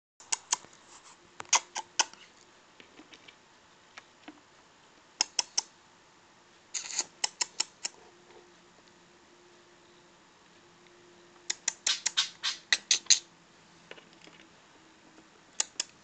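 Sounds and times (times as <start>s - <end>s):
budgerigar clicking: 0.2s - 0.7s, 1.4s - 2.2s, 5.2s - 5.7s, 7.0s - 8.0s, 11.4s - 13.3s, 15.6s - 16.0s
budgerigar rattling: 11.5s - 13.3s.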